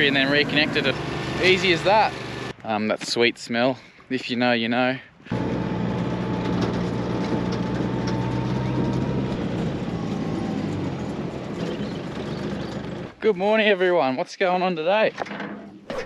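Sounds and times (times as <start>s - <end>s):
engine-like rumble: 0.0s - 2.5s, 5.3s - 13.2s
low hum: 5.3s - 13.2s.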